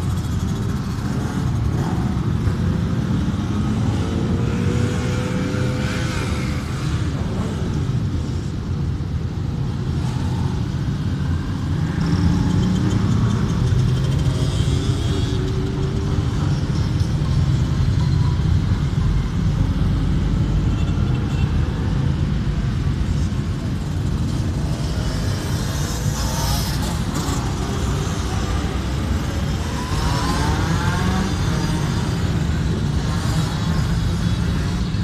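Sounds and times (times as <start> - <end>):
motorcycles riding past: 23.8 - 35.0.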